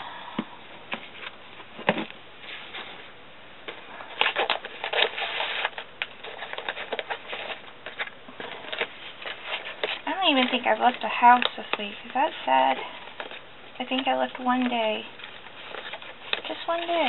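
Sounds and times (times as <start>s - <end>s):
paper rustling: 3.7s - 17.0s.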